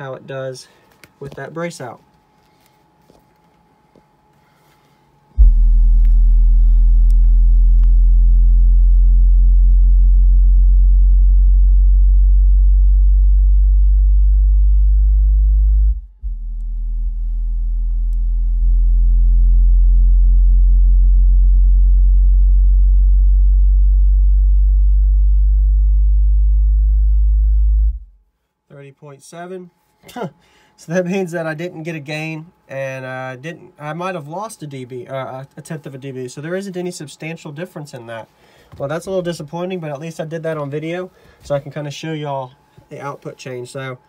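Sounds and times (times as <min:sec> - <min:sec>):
subwoofer playing low sine tone: 0:05.3 - 0:28.3.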